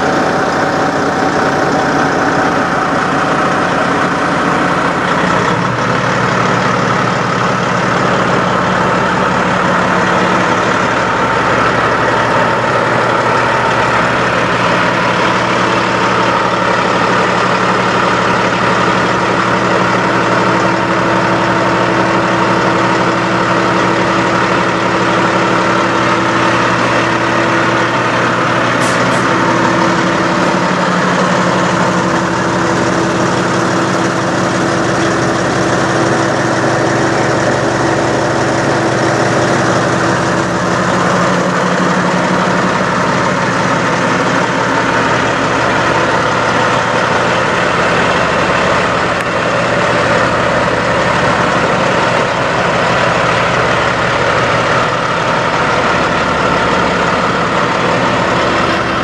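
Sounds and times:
truck diesel engine idling: 0.0s - 59.0s.

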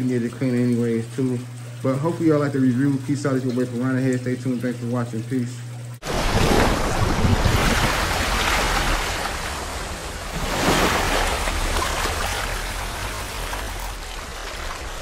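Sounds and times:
water rushing and splashing: 6.0s - 15.0s.

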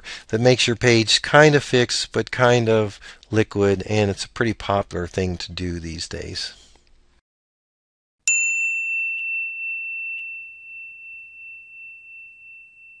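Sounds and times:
bell-like chime ringing: 8.3s - 13.0s.

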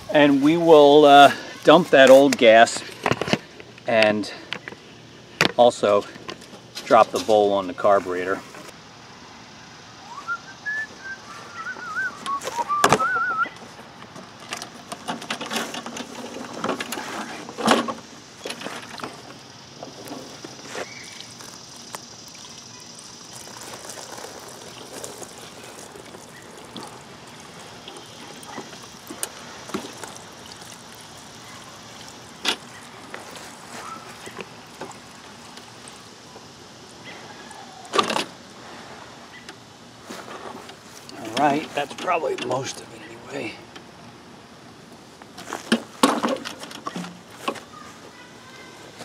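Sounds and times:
mower clattering and knocking: 12.3s - 21.0s, 40.1s - 42.8s, 45.4s - 47.7s
gasoline trickling into a pan: 15.5s - 37.0s.

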